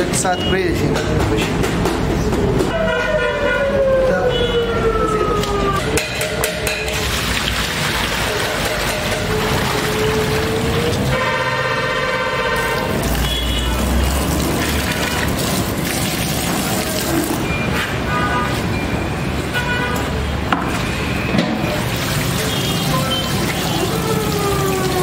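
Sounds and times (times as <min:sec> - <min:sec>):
traffic noise: 0:00.0 - 0:25.0
water splashing in metal basin: 0:06.0 - 0:11.8, 0:12.4 - 0:17.7, 0:21.6 - 0:25.0.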